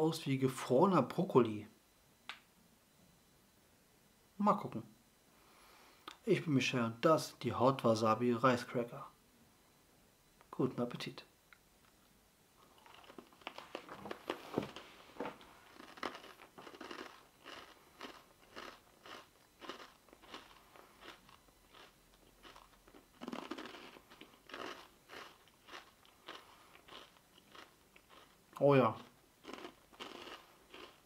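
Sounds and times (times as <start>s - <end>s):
person chewing crunchy crackers: 12.6s - 31.0s.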